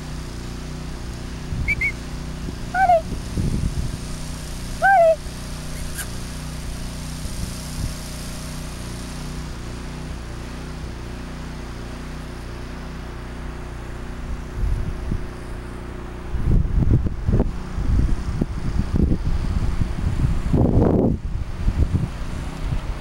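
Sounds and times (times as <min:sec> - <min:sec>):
wind buffeting microphone: 0:01.1 - 0:08.2, 0:14.3 - 0:23.0
short high-pitched call: 0:01.7 - 0:02.0, 0:02.8 - 0:03.1, 0:04.8 - 0:06.2.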